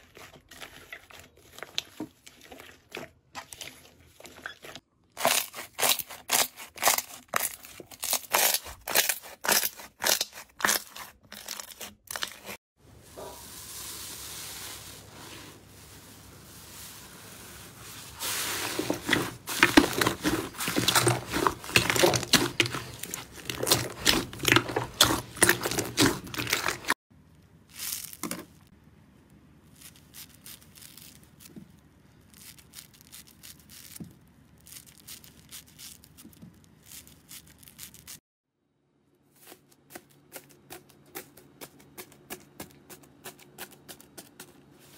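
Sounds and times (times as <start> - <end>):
scissors cutting foam sponge: 5.2 - 12.6
fluffy slime crackling: 5.2 - 27.0, 29.6 - 38.2
slime squishing and popping: 19.0 - 26.9.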